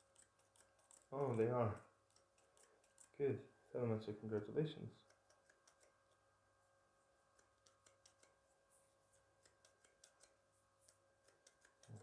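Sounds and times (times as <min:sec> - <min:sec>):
scissors snipping hair: 0:00.0 - 0:03.2, 0:05.0 - 0:06.0, 0:07.3 - 0:08.4, 0:09.4 - 0:12.0.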